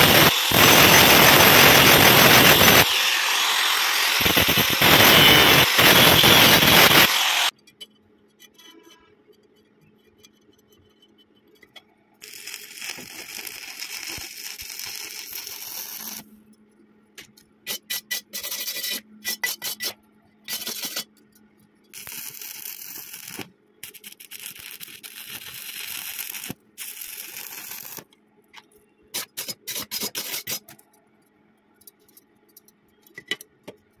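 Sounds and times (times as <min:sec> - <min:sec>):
welding arc crackling: 0:00.0 - 0:07.5, 0:12.2 - 0:16.2, 0:22.0 - 0:28.1.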